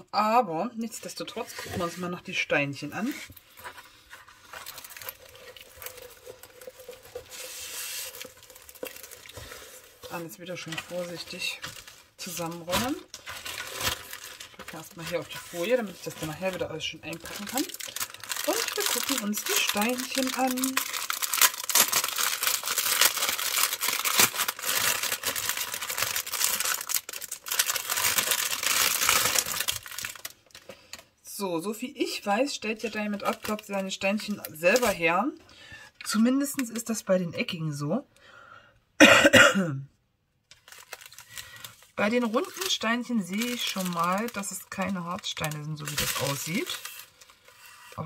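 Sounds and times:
canvas and plastic film crackling: 0:01.0 - 0:31.1, 0:32.6 - 0:35.4, 0:40.5 - 0:48.0
plastic packets crinkling: 0:03.0 - 0:31.1, 0:32.8 - 0:35.1, 0:40.5 - 0:48.0.

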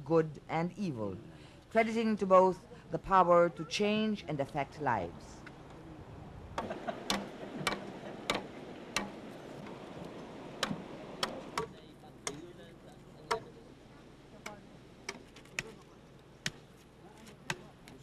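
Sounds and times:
machete chopping bamboo: 0:07.1 - 0:09.2, 0:10.6 - 0:12.4, 0:16.4 - 0:16.7.

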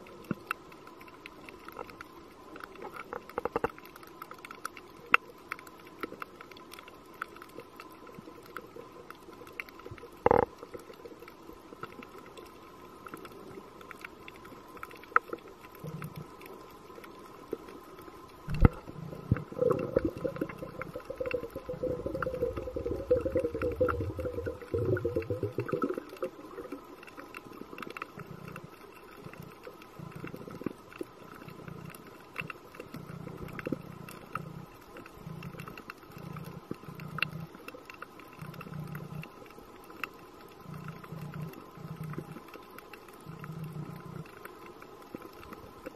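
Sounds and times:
faint steady whine: 0:00.0 - 0:45.9
faint underwater clicks: 0:00.0 - 0:45.9
diver's exhaled breath bubbling: 0:18.5 - 0:26.3.

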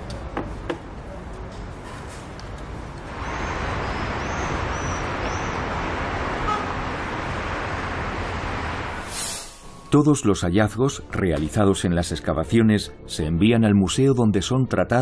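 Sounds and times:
city traffic: 0:00.0 - 0:10.5.

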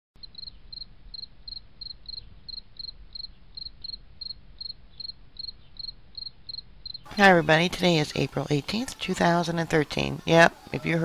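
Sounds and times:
cricket chirping: 0:00.2 - 0:07.1.

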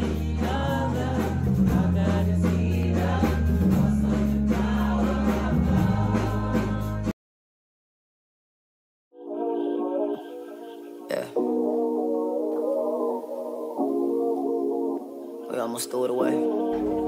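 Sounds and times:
band and congregation singing: 0:00.0 - 0:07.1, 0:16.6 - 0:17.0
low bass notes: 0:00.0 - 0:07.1.

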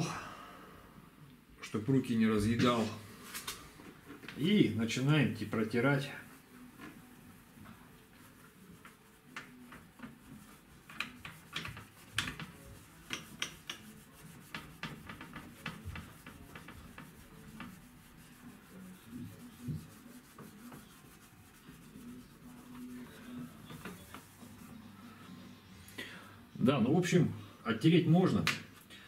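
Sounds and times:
bandage scrubbing plastic panel: 0:06.7 - 0:24.6.

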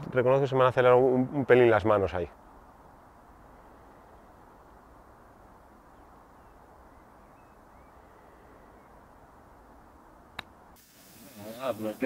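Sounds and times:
faint bird chirps: 0:05.7 - 0:09.4.

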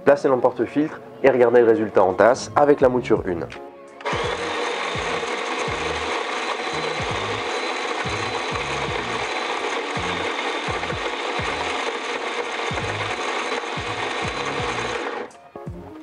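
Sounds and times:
coffee grinder grinding beans: 0:04.0 - 0:15.4.

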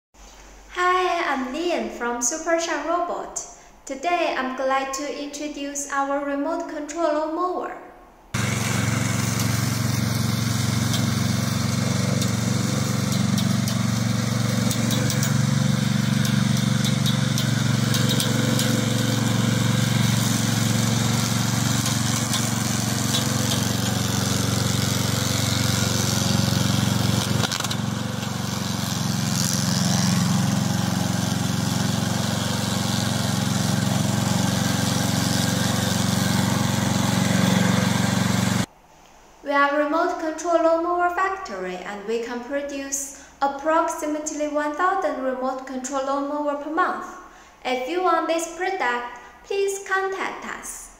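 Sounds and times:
lawn mower engine running: 0:08.4 - 0:38.7.

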